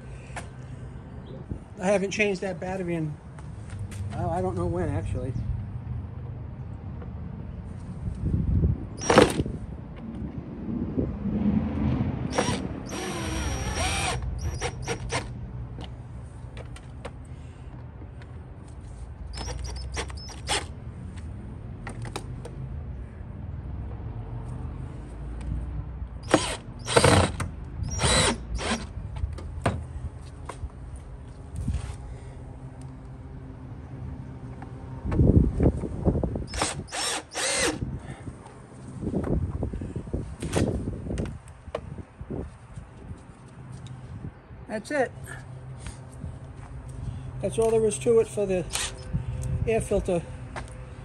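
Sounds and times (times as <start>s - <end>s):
drill motor running: 12.3s - 15.2s, 26.2s - 28.9s, 36.5s - 37.8s.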